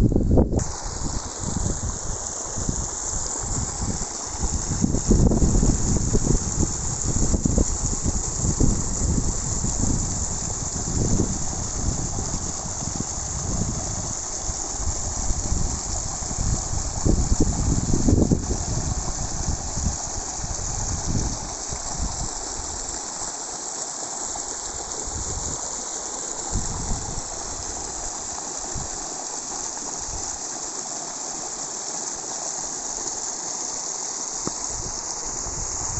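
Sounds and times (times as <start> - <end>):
wind buffeting microphone: 0.0 - 22.4, 26.5 - 27.7
floodwater rushing: 0.6 - 35.9.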